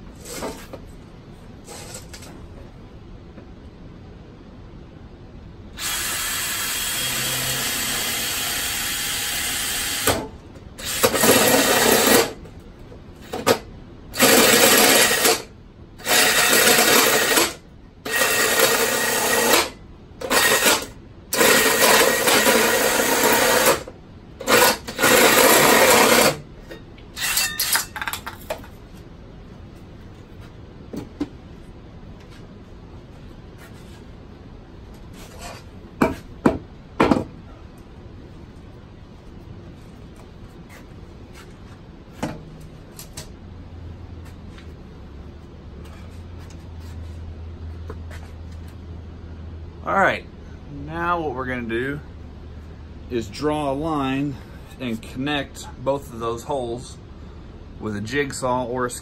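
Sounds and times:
cordless drill boring through pipe: 0:05.8 - 0:10.2, 0:10.8 - 0:12.3, 0:14.2 - 0:15.4, 0:16.0 - 0:23.8, 0:24.5 - 0:26.4.

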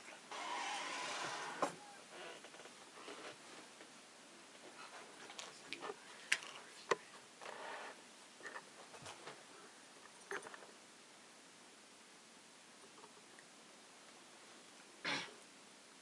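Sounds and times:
faint rustling: 0:00.0 - 0:10.9.

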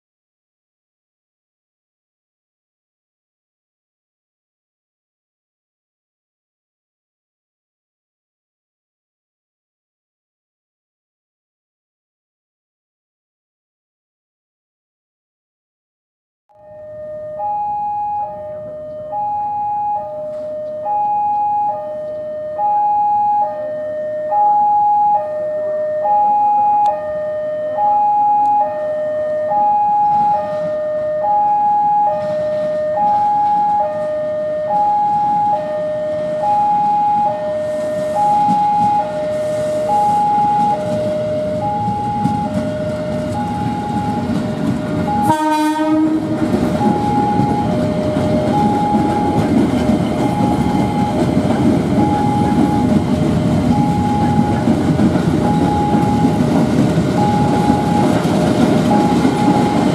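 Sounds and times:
two-tone electronic warning alarm: 0:16.5 - 0:59.9
train passing: 0:16.6 - 0:59.9
train horn blast: 0:45.1 - 0:51.2.

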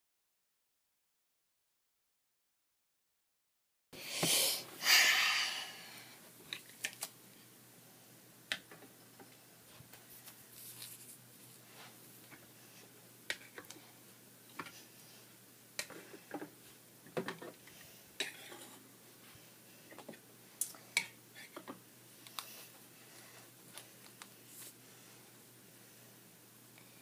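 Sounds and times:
rustling handling noise: 0:09.6 - 0:13.7, 0:22.4 - 0:24.8.

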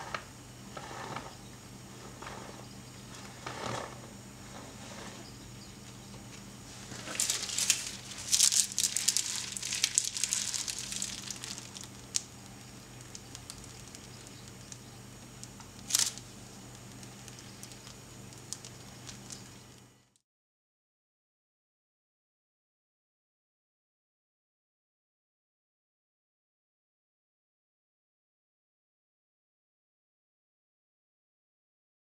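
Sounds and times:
low steady hum: 0:00.0 - 0:20.2
plastic piping bag crinkling: 0:06.3 - 0:19.9.

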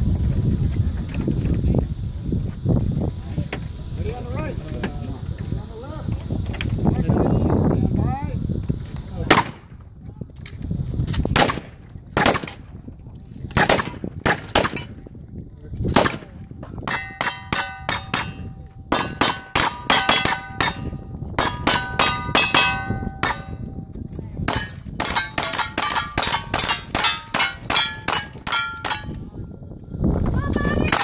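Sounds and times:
steel target clanging: 0:16.8 - 0:29.3.

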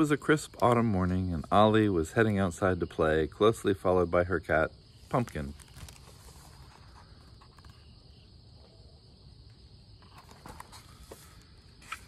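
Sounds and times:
crickets trilling: 0:00.0 - 0:12.0
soft rustles: 0:05.1 - 0:07.9.

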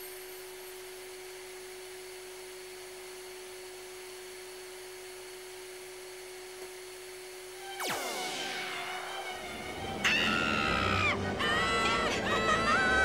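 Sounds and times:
vacuum cleaner running: 0:00.0 - 0:13.0
loud sound falling in pitch: 0:07.6 - 0:13.0.

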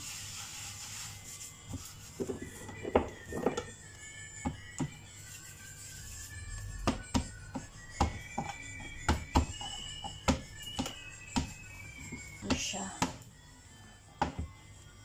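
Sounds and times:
soft background music: 0:00.0 - 0:15.0
hands patting dough on board: 0:06.8 - 0:13.2.

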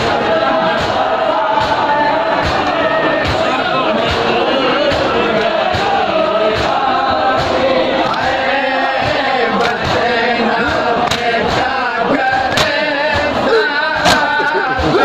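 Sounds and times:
men chanting together: 0:00.0 - 0:15.0
hands slapping chests: 0:09.6 - 0:10.0, 0:10.7 - 0:11.7, 0:12.3 - 0:13.3, 0:14.0 - 0:14.9.

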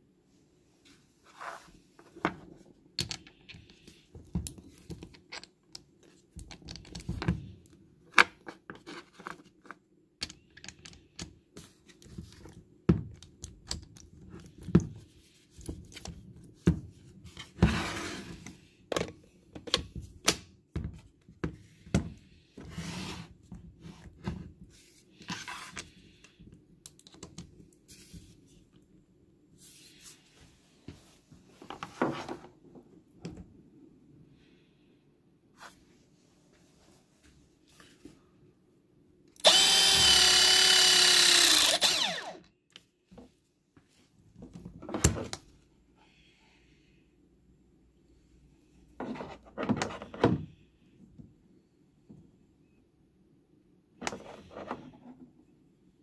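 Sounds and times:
metal parts clicking and knocking: 0:10.2 - 0:11.3.

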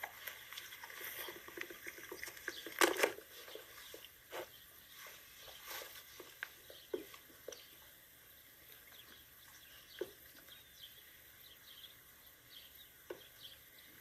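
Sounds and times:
dog chewing and crunching bones: 0:00.0 - 0:04.0.

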